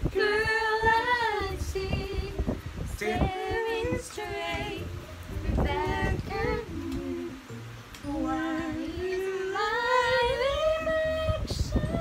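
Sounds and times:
woman singing long rising note: 5.6 - 12.0.

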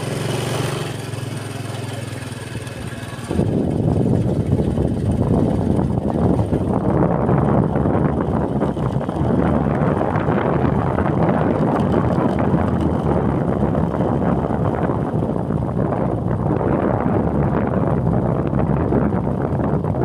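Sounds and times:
motorcycle engine running: 0.0 - 20.0
wind buffeting microphone: 0.0 - 20.0.

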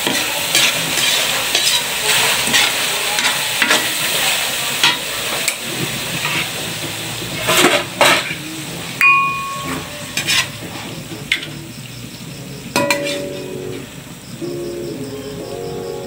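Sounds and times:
spatula scraping a pan: 0.0 - 11.6, 12.8 - 13.9
food sizzling in a pan: 0.0 - 16.0.

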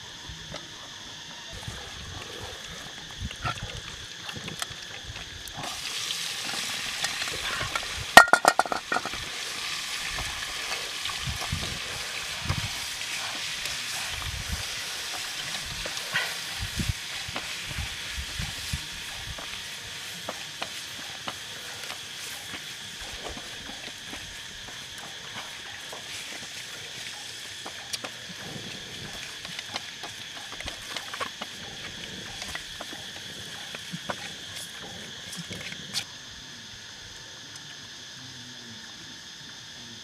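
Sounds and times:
meat sizzling in a wok: 3.8 - 35.3.

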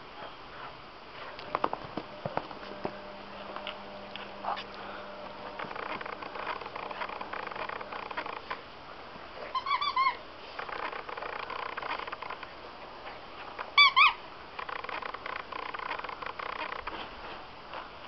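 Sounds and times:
dog chewing with crackling rustling: 0.2 - 8.7, 9.3 - 18.0
dog toy squeaking: 9.4 - 12.4, 13.7 - 16.8.

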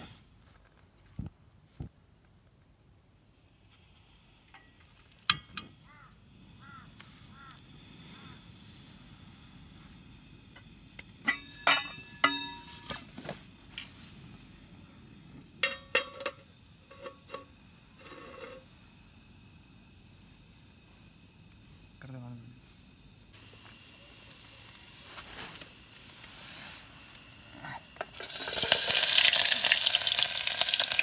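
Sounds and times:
pot set down on stove clinking: 11.3 - 13.0, 15.6 - 17.2
metal clicks from gas stove: 15.6 - 17.5.

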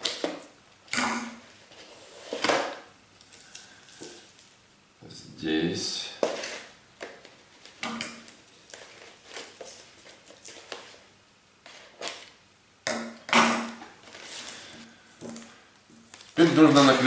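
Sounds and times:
paper rustling and crinkling: 6.2 - 12.4, 14.0 - 17.0.

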